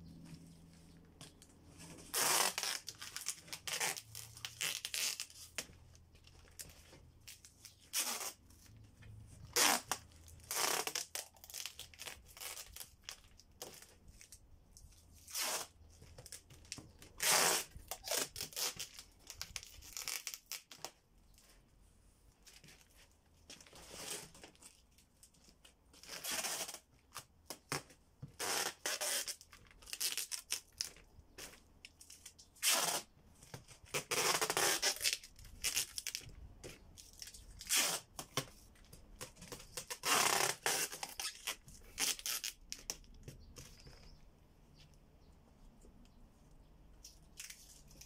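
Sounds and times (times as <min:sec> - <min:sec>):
packing tape ripping: 0:02.0 - 0:05.7, 0:07.3 - 0:08.6, 0:09.5 - 0:14.4, 0:15.2 - 0:20.9, 0:26.0 - 0:27.8, 0:28.4 - 0:36.3, 0:37.0 - 0:38.6, 0:39.2 - 0:43.9.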